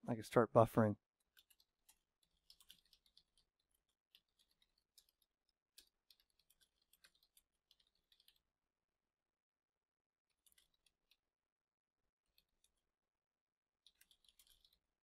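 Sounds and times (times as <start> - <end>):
faint keyboard typing: 1.2 - 8.5, 10.3 - 11.2, 12.2 - 12.8, 13.8 - 15.0.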